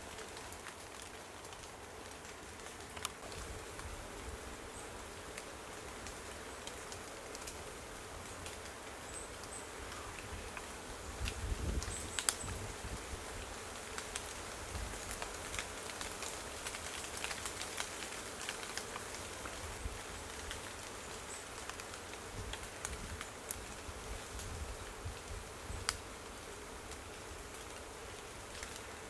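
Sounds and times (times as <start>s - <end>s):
light rain drops ticking: 0.0s - 29.0s
wind rumble on microphone: 11.1s - 13.3s.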